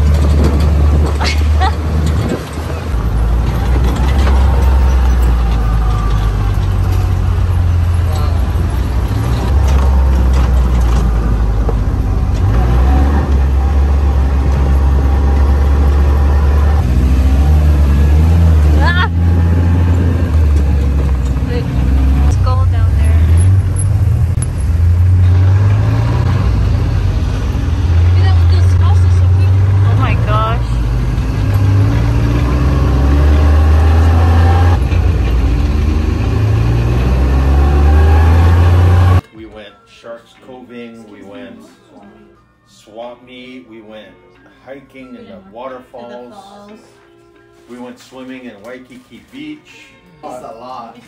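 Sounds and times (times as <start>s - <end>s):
off-road vehicle engine rumbling: 0.0s - 39.3s.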